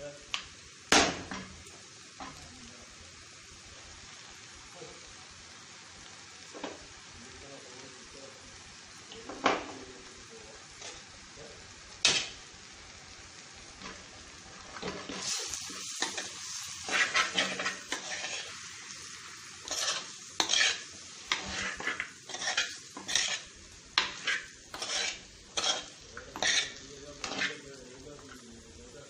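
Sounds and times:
meat sizzling: 0:00.0 - 0:29.0
metal spoon scraping clay pot: 0:19.7 - 0:27.6.

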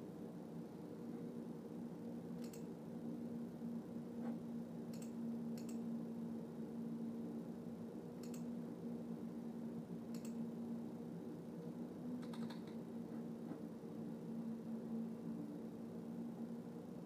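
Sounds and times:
low room hum: 0:00.0 - 0:17.0
faint sharp clicks: 0:02.4 - 0:02.7, 0:04.9 - 0:05.8, 0:08.2 - 0:08.5, 0:10.1 - 0:10.4, 0:12.2 - 0:12.8.

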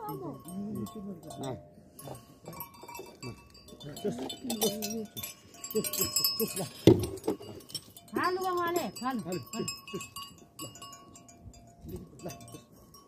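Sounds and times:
metal livestock bells clinking: 0:00.0 - 0:13.0.

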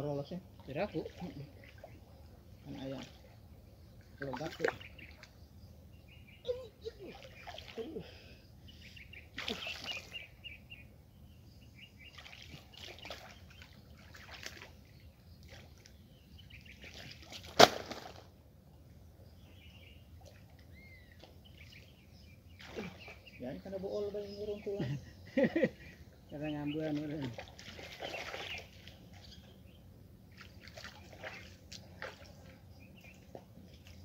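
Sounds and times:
birds chirping faintly: 0:00.0 - 0:34.0
water splashing and sloshing: 0:00.4 - 0:05.4, 0:06.5 - 0:08.2, 0:09.2 - 0:10.5, 0:12.0 - 0:18.4, 0:20.0 - 0:23.4, 0:26.8 - 0:34.0
loud splash: 0:09.4 - 0:10.1, 0:17.0 - 0:18.3.

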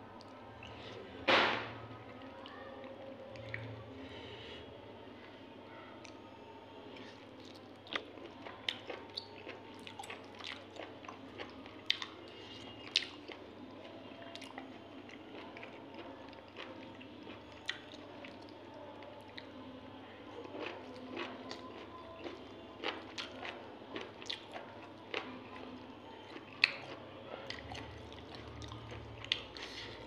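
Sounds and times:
person chewing food: 0:06.9 - 0:19.5, 0:20.5 - 0:30.0.

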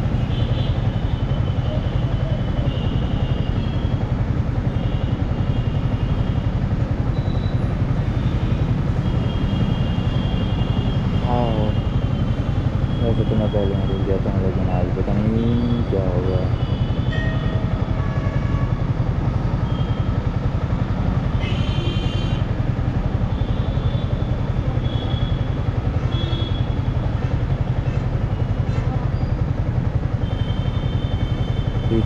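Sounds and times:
motorcycle engine idling: 0:18.8 - 0:32.0
high-pitched vehicle horn: 0:30.4 - 0:32.0.

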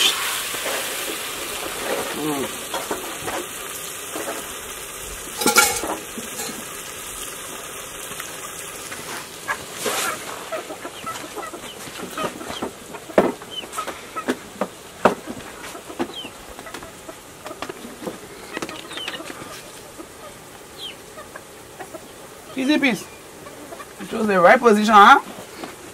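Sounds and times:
dishes and utensils clicking: 0:05.4 - 0:06.6
chickens clucking: 0:05.4 - 0:25.9
chicken squawk: 0:09.4 - 0:14.3, 0:15.5 - 0:24.0.

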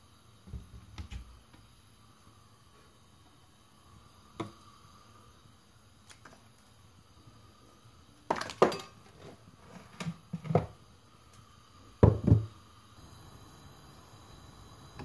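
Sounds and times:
metal pots clanking and scraping: 0:08.3 - 0:10.8.

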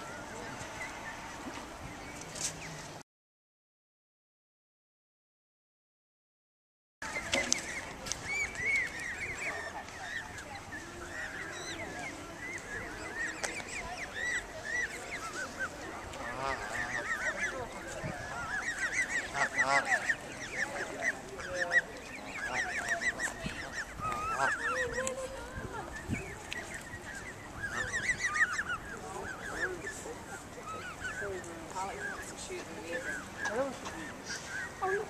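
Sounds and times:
geese honking: 0:07.2 - 0:25.6, 0:26.2 - 0:35.0.

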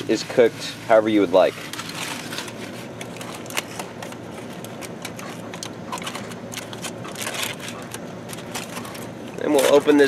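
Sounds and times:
foil crinkling and crackling: 0:00.0 - 0:10.0.

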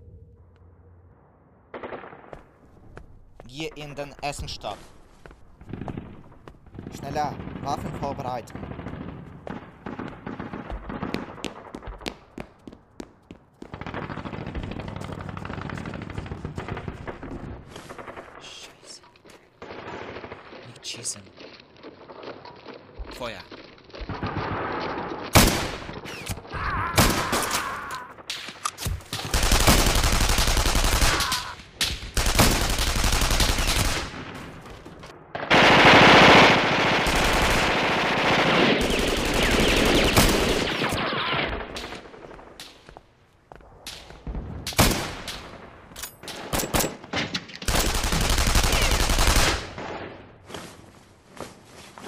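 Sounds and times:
single gunshots: 0:24.1 - 0:27.6
machine-gun bursts: 0:47.7 - 0:49.7.

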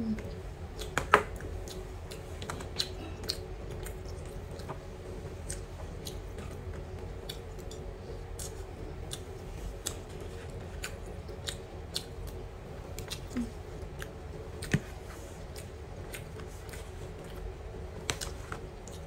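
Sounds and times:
steady low hum: 0:00.0 - 0:19.0
chewing: 0:00.8 - 0:19.0.

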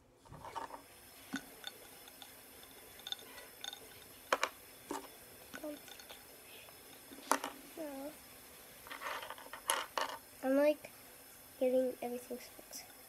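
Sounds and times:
small objects clicking and tapping: 0:00.3 - 0:07.6, 0:08.8 - 0:10.2.

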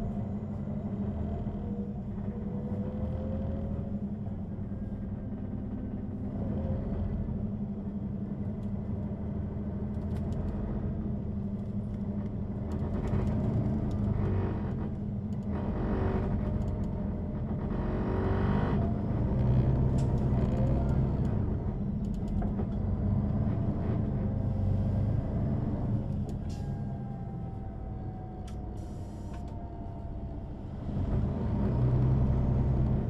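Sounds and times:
bus engine running: 0:00.0 - 0:33.0.

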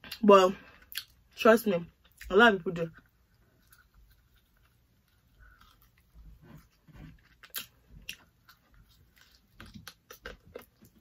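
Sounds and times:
faint chewing: 0:02.9 - 0:11.0.

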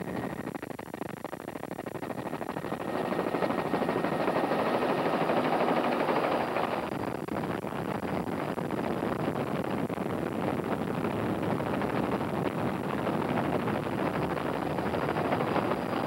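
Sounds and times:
helicopter rotor chopping: 0:00.0 - 0:07.2, 0:12.7 - 0:16.0.

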